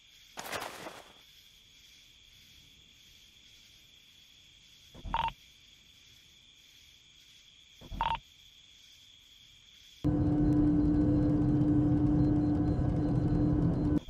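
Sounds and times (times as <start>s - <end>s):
loud steady hum: 10.1s - 14.0s.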